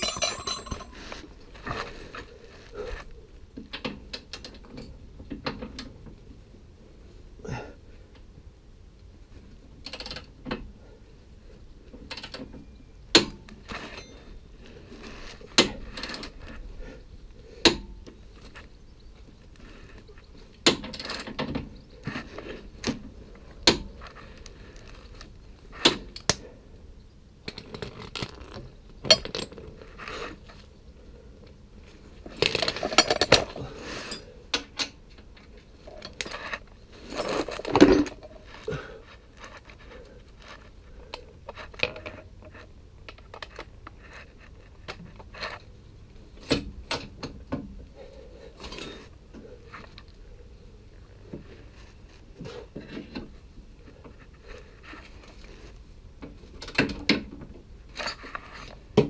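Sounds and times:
wrench and socket clinking: 0:00.0 - 0:01.0.

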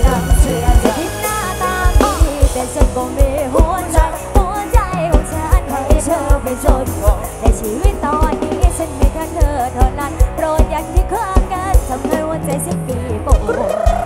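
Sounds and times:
man and woman singing: 0:00.0 - 0:08.5
pop band playing: 0:00.0 - 0:14.0.

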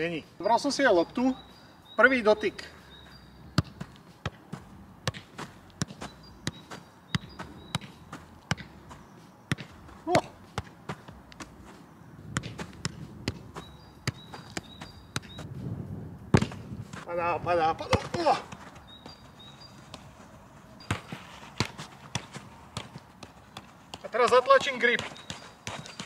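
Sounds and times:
football taps with boots: 0:03.5 - 0:15.5, 0:16.3 - 0:17.1, 0:17.7 - 0:20.2, 0:20.8 - 0:26.0.

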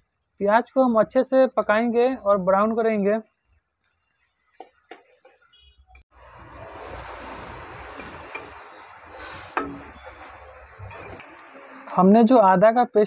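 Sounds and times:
onions sizzling in fat: 0:04.9 - 0:12.4.

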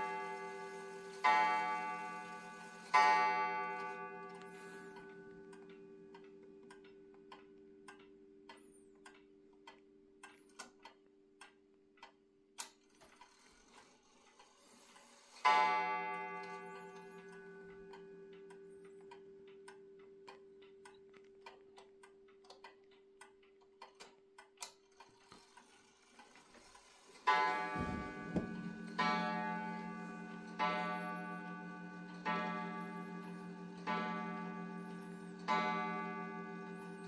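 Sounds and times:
wall clock ticking: 0:00.0 - 0:37.0
clock gong strike ringing: 0:27.3 - 0:37.0.

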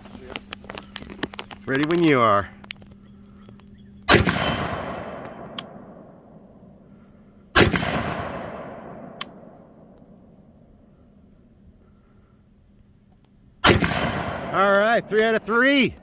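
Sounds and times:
rifle shots with echo: 0:04.1 - 0:06.7, 0:07.5 - 0:10.7, 0:13.6 - 0:15.1.

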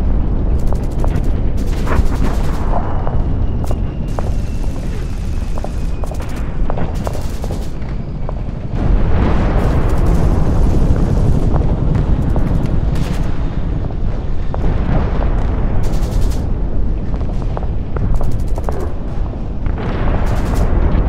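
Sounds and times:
rumble of explosions: 0:00.0 - 0:21.0
gunshots: 0:00.6 - 0:07.9, 0:09.1 - 0:13.6, 0:15.8 - 0:16.6, 0:18.1 - 0:19.1, 0:19.8 - 0:21.0.

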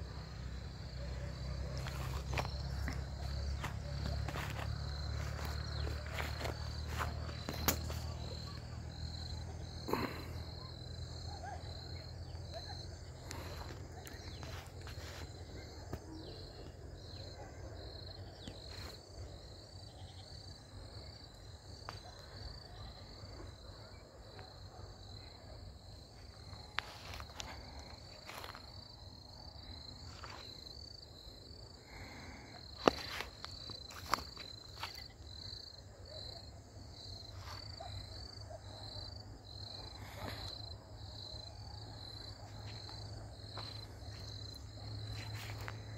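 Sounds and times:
insect chirping: 0:00.0 - 0:45.9.

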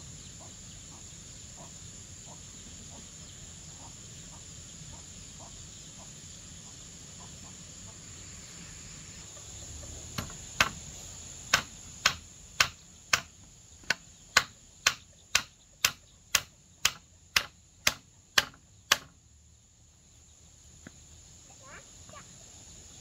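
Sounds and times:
high-pitched insect drone: 0:00.0 - 0:13.1
hammer striking wooden poles: 0:10.2 - 0:10.8, 0:11.5 - 0:19.2.

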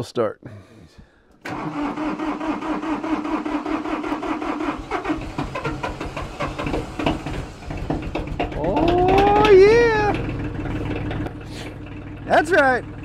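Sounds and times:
diesel tractor engine running: 0:01.4 - 0:13.0.

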